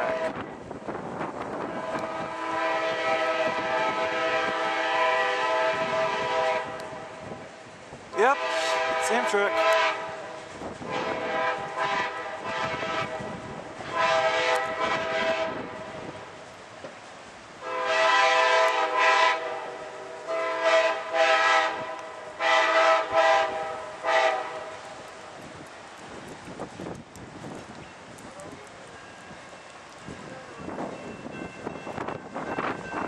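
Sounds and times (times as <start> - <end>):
locomotive air horn blasts: 0.0 - 0.4, 1.6 - 7.0, 8.2 - 15.9, 17.6 - 24.8.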